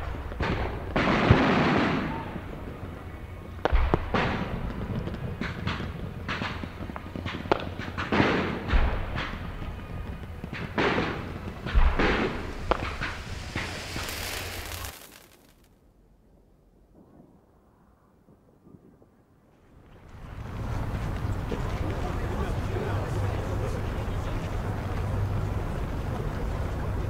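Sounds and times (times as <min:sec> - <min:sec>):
shells bursting: 0:03.6 - 0:15.8.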